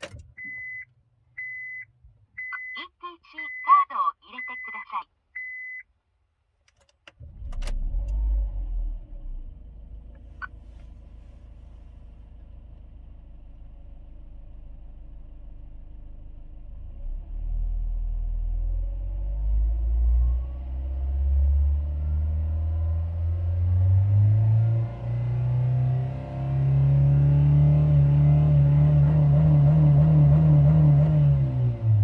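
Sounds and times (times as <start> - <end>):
car engine starting and idling: 0.0 - 2.7, 6.6 - 32.0.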